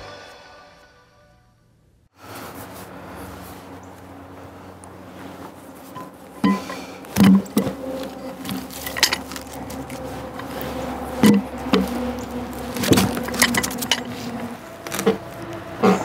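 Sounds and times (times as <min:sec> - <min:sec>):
metal hook clinking: 0:08.5 - 0:09.7, 0:12.9 - 0:14.2.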